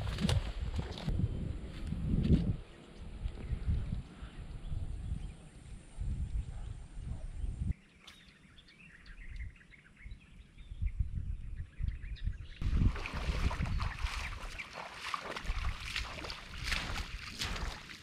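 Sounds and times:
wind rumble on microphone: 0:00.0 - 0:07.8, 0:09.0 - 0:18.0
small birds chirping: 0:02.6 - 0:17.0.

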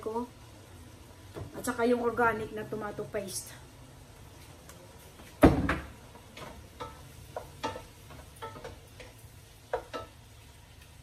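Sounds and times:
loud knock on pot: 0:05.4 - 0:06.0.

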